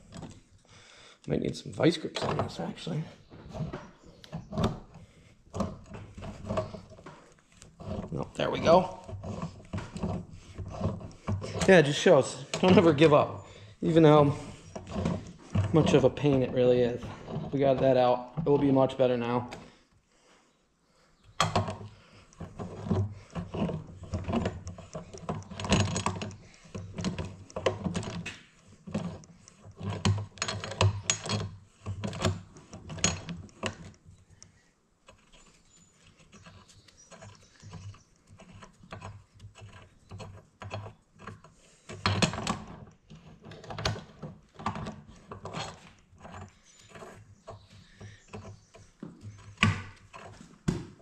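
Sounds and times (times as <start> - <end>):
hand tools clanking on metal: 5.6 - 19.7, 22.4 - 33.9.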